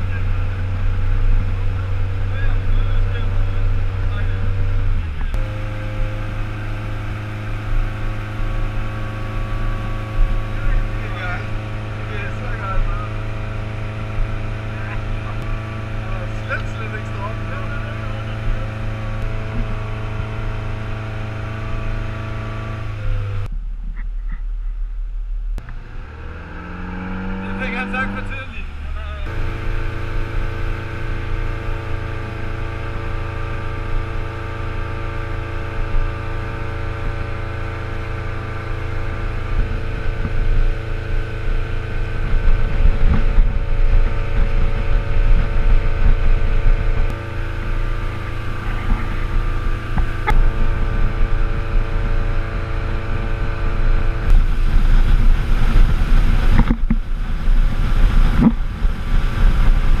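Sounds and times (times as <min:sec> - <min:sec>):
motorboat engine droning: 0:00.0 - 1:00.0
rush of boat wake: 0:25.8 - 1:00.0.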